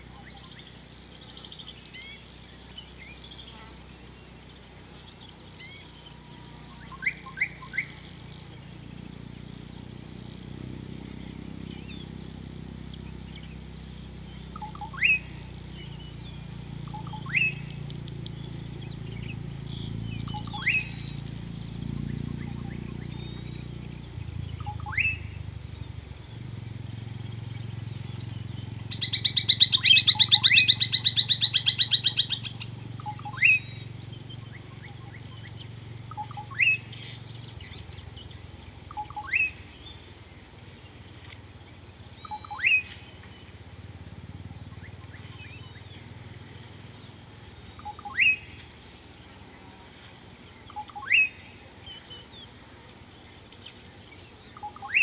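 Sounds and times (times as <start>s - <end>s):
rapid bird trill: 0.0s - 49.5s, 50.4s - 52.6s, 53.4s - 55.0s
low steady rumble: 0.0s - 55.0s
upward-sweeping bird whistle: 5.6s - 6.0s, 6.8s - 8.1s, 14.5s - 21.3s, 22.0s - 25.4s, 28.9s - 37.8s, 38.9s - 39.6s, 42.2s - 43.0s, 44.8s - 46.0s, 47.5s - 48.6s, 50.7s - 51.5s, 54.6s - 55.0s.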